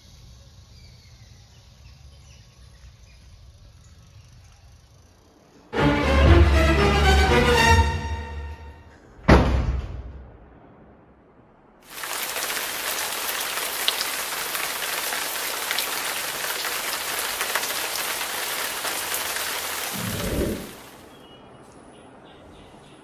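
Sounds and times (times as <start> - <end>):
raindrop ticks: 11.9 - 20.9
rain hissing: 11.9 - 21.1.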